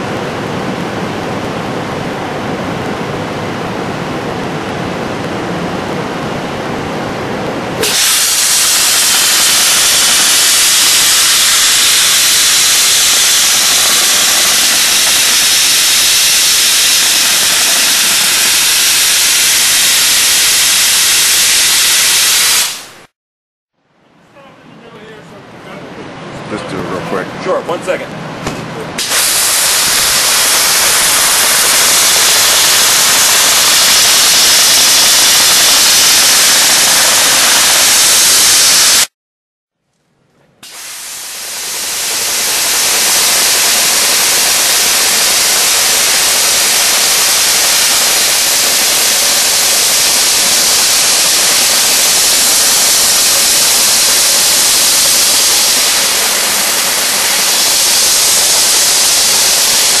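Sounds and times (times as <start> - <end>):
dry ice blaster hissing: 7.8 - 23.1, 29.0 - 39.1, 40.6 - 60.0.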